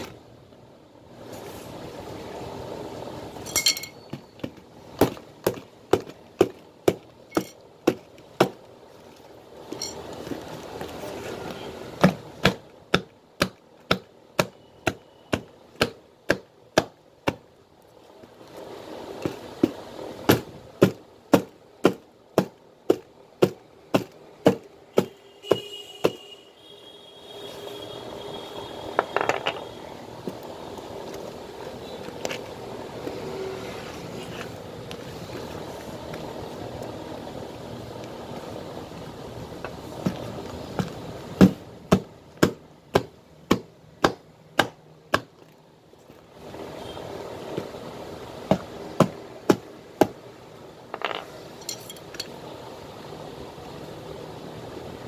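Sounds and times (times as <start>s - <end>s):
hammer striking leather shoe: 4.0s - 8.6s, 12.0s - 17.4s, 19.3s - 26.2s, 40.0s - 45.4s, 48.5s - 50.2s.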